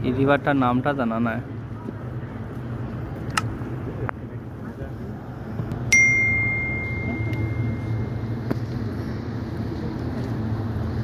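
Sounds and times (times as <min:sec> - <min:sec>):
city background hum: 0:00.0 - 0:11.0
small bell ringing: 0:05.9 - 0:08.2.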